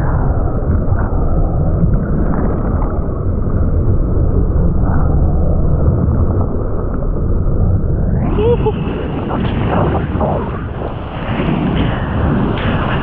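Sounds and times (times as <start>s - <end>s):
ocean wave roaring: 8.1s - 13.0s.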